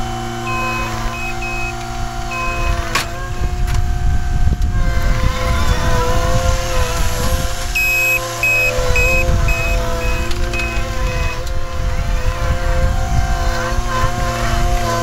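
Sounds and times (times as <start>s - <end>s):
reversing alarm beeping: 0.0s - 2.9s, 7.8s - 11.5s
loader diesel engine running: 0.0s - 15.0s.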